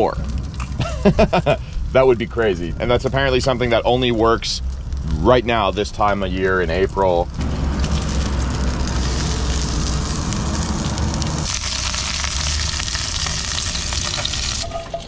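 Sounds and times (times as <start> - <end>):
steady low rumble: 0.0 - 14.6
fish frying in sizzling oil: 7.3 - 15.0.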